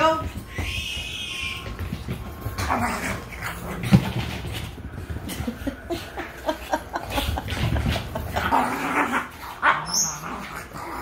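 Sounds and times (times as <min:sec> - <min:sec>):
puppies scuffling on couch: 0:00.0 - 0:11.0
puppies yipping and whimpering: 0:00.5 - 0:02.0, 0:09.6 - 0:10.5.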